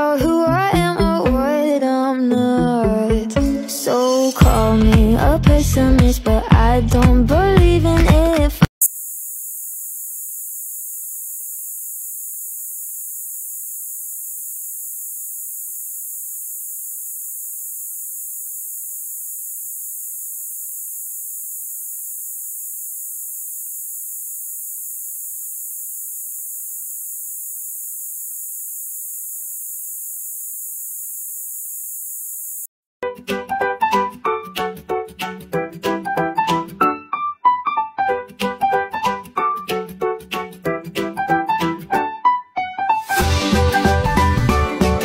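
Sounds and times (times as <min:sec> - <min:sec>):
high-pitched hiss: 0:08.8 - 0:32.7.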